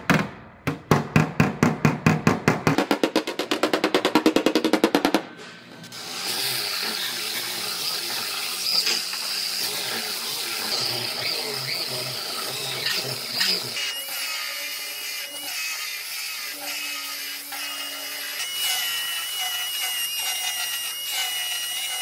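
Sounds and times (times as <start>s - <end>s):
belt sander grinding steel: 5.8s - 22.0s.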